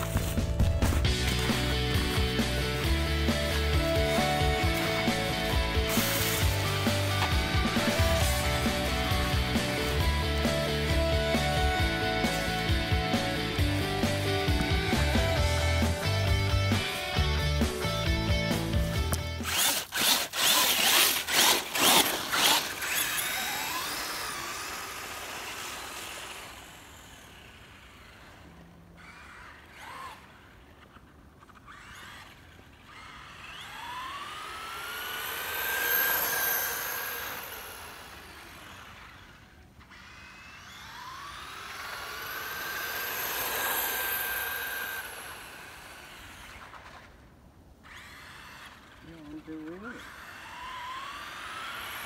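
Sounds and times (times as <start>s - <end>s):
rock music with strummed guitar: 0.0s - 19.5s
rc truck electric motor whining: 0.0s - 52.0s.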